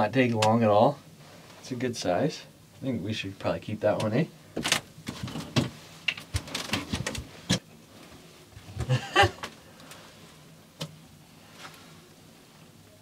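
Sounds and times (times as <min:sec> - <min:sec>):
clothing rustle: 0:11.3 - 0:12.7.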